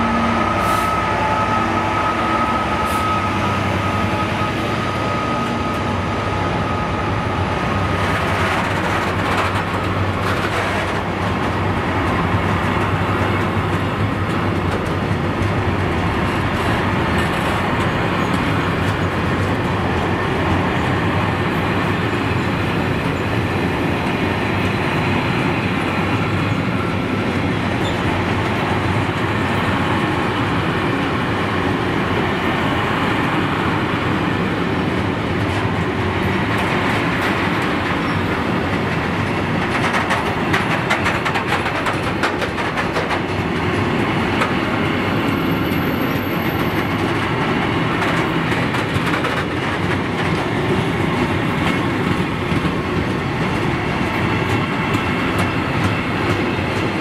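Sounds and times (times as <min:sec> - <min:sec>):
high steady tone: 0:00.0 - 0:07.9
diesel locomotive passing: 0:00.0 - 0:57.0
train wheels clickety-clack: 0:02.8 - 0:57.0.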